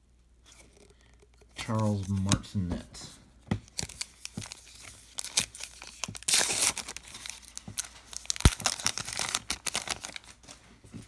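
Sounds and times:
wrapper tearing: 0:03.7 - 0:10.5
wrapper crinkling: 0:03.7 - 0:10.6.

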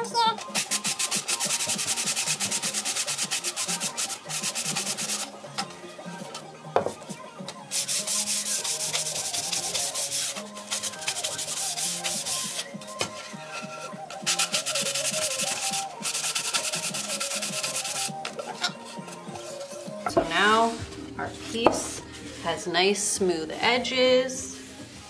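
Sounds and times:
sanding sponge rasping on wood: 0:00.6 - 0:05.3, 0:07.7 - 0:12.6, 0:13.5 - 0:18.1.

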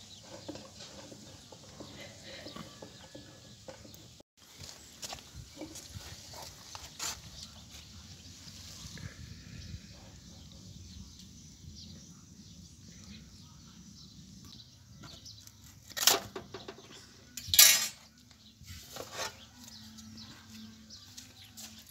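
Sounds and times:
tongs clattering on metal tray: 0:17.4 - 0:18.0.

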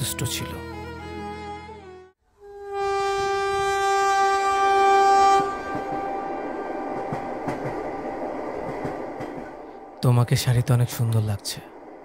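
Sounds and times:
train horn: 0:00.6 - 0:07.2
train rumble inside carriage: 0:03.1 - 0:12.0.

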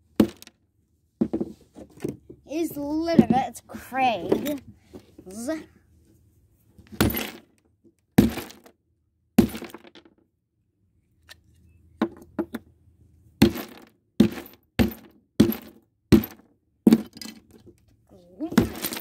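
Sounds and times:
hammer smashing glass: 0:07.0 - 0:07.4.

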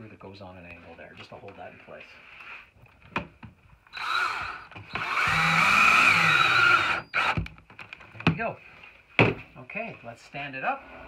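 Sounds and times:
cordless drill driving screw into wood: 0:03.9 - 0:07.6.

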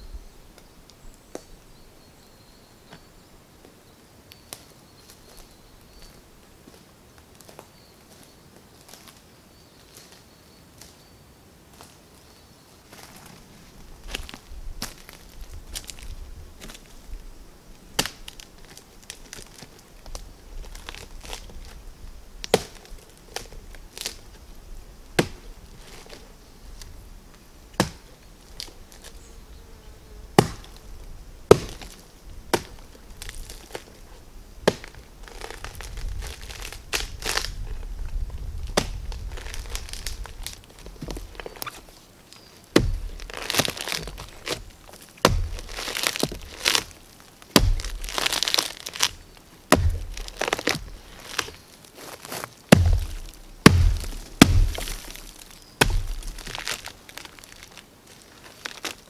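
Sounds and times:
wood crumbling and tearing: 0:14.0 - 0:17.0, 0:18.0 - 0:24.4, 0:31.5 - 0:42.0, 0:42.7 - 0:59.0
rotten wood snapping and cracking: 0:14.0 - 0:24.4, 0:25.1 - 0:26.9, 0:27.8 - 0:29.2, 0:30.4 - 0:30.9, 0:31.5 - 0:59.0
dull thumps: 0:42.8 - 0:46.9, 0:47.5 - 0:56.9.

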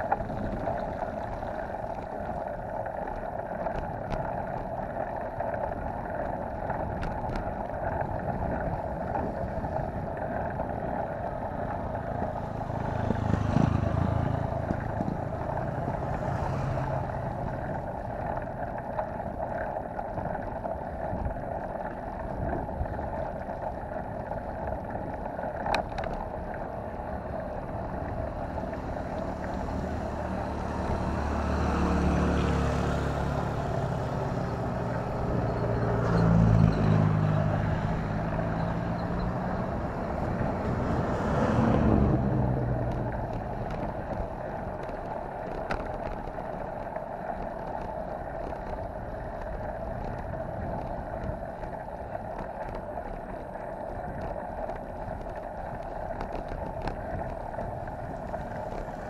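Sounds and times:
tyres on wet road: 0:00.0 - 0:59.0
wind on microphone: 0:06.0 - 0:26.4, 0:27.2 - 0:59.0
motorcycle engine passing: 0:11.6 - 0:18.0.

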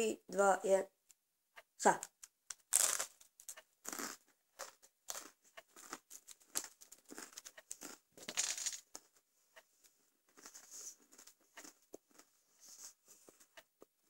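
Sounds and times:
pretzel sticks being crunched: 0:02.1 - 0:08.8.

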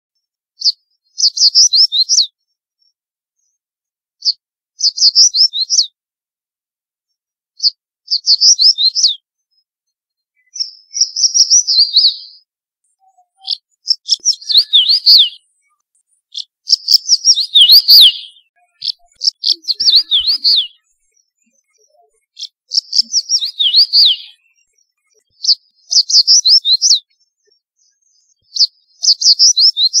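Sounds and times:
bird singing high notes: 0:14.2 - 0:15.5, 0:17.0 - 0:20.9, 0:23.0 - 0:24.4.

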